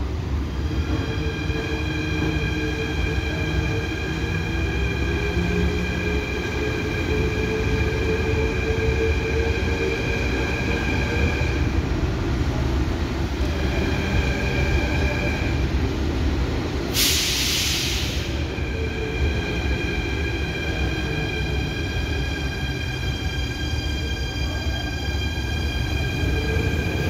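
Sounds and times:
train low rumble: 0.0 - 27.0
air release hiss: 16.9 - 18.4.

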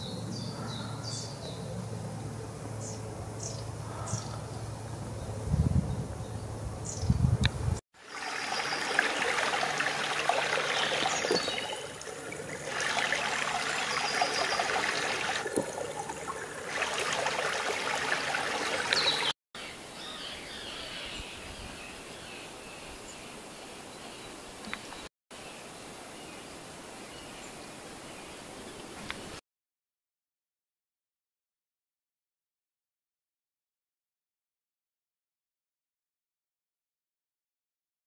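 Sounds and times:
water running and trickling: 8.0 - 19.4.

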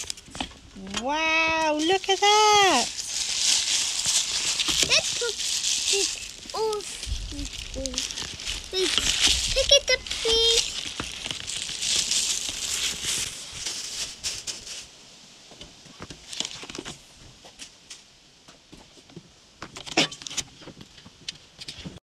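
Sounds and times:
cardboard box rustling: 1.1 - 14.9.

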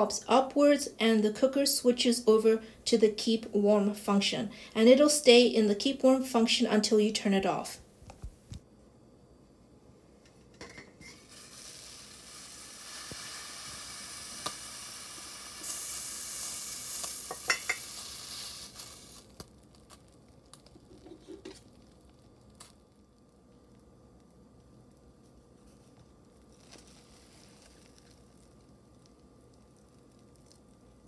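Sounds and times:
rice cooker steam hiss: 11.0 - 19.4.

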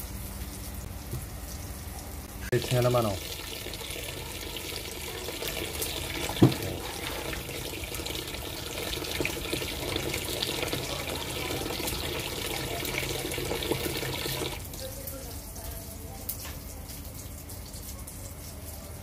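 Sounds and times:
water splashing over fruit: 2.5 - 14.9
tap running into basin: 2.6 - 14.6
short thump: 6.4 - 6.7.

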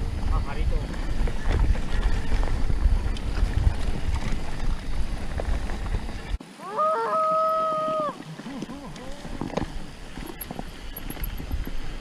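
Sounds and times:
wind buffeting microphone: 0.0 - 6.4
bike clicks and rattles: 0.1 - 6.4.

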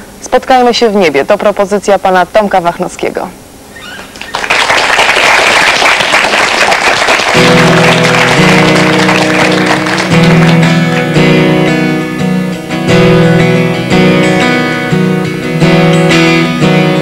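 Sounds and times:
audience applauding: 3.9 - 11.4
acoustic guitar chords: 7.0 - 17.0.

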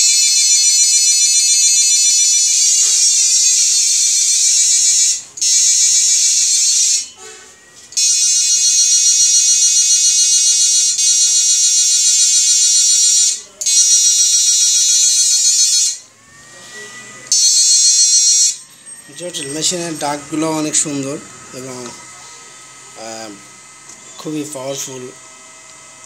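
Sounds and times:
shrill electronic inverter buzz: 0.0 - 26.0.

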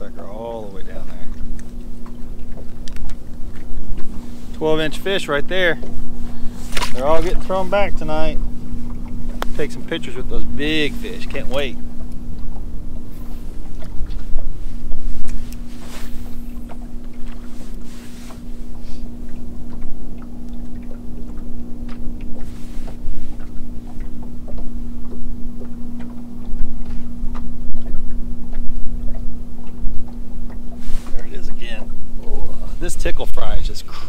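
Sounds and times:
electric motor humming: 0.0 - 33.8
wind and water rumble: 0.0 - 34.0
light clicks and taps: 1.0 - 4.6.

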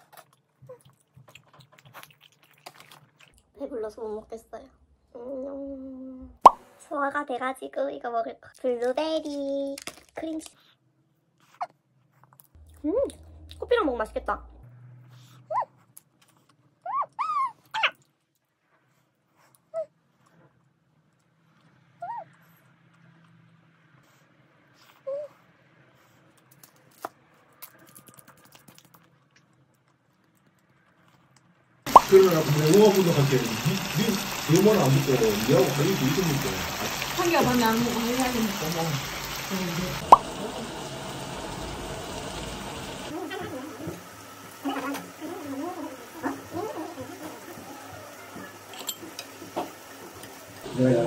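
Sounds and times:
person speaking indistinctly: 12.6 - 14.6, 31.9 - 40.7
loud sound: 12.6 - 15.1.

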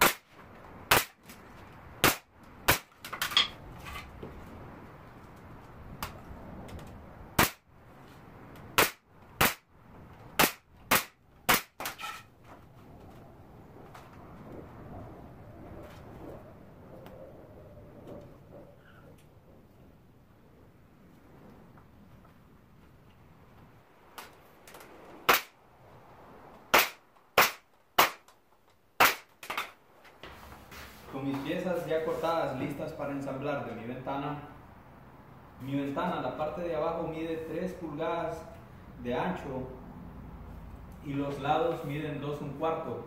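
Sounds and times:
pneumatic nailer firing nails: 0.0 - 0.3, 0.9 - 1.3, 2.0 - 3.3, 7.4 - 7.6, 8.8 - 9.6, 10.4 - 12.2, 26.7 - 28.3, 29.0 - 29.7.

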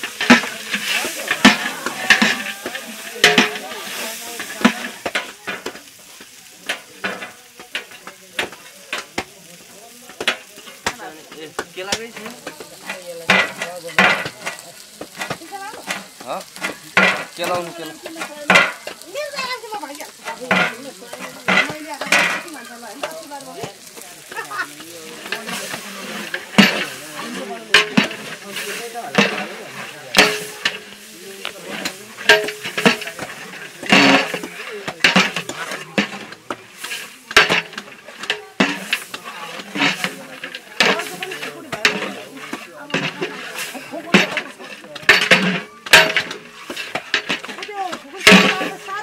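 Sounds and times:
metal spoon scraping pot: 0.0 - 5.8, 24.8 - 30.9, 31.5 - 49.0
curry sizzling: 0.0 - 49.0.

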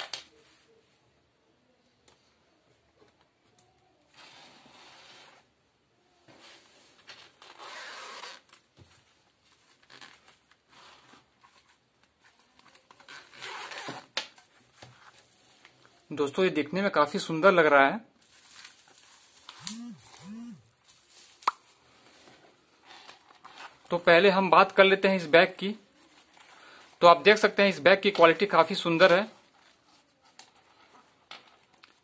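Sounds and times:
zipper being pulled open: 4.1 - 5.5, 7.4 - 8.6, 13.0 - 14.1, 19.6 - 20.7.

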